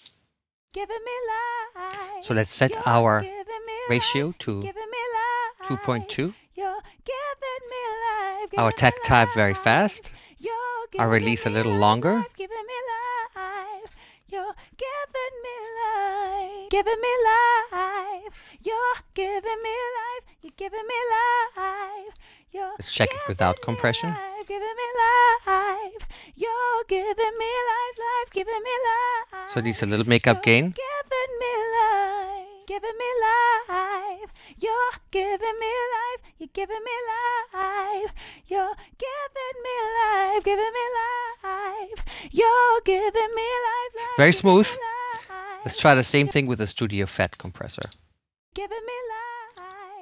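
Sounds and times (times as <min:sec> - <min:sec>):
woman singing unaccompanied: 0:00.7 - 0:46.3, 0:48.6 - 0:50.0.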